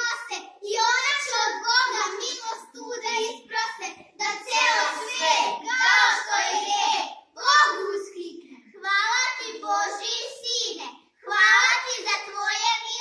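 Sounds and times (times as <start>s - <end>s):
children singing: 4.2s - 7.8s.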